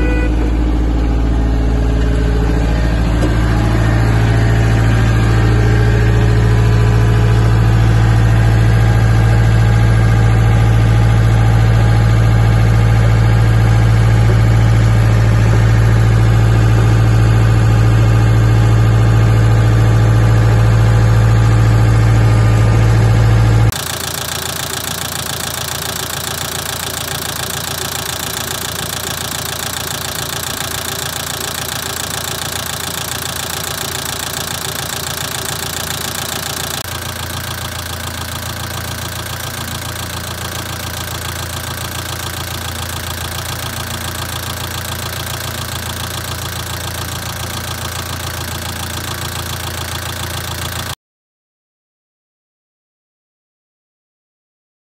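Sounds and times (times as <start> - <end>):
diesel engine idling: 0.0 - 51.0.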